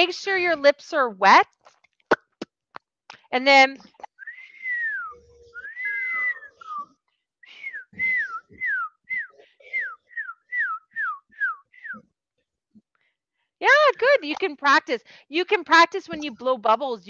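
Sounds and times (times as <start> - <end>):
person whistling birdlike: 4.2 - 12.1.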